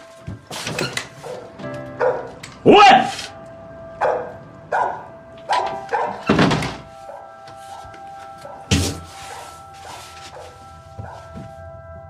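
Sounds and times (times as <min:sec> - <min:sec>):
dog barking: 0:01.2 - 0:02.3, 0:04.0 - 0:06.3, 0:07.1 - 0:08.7.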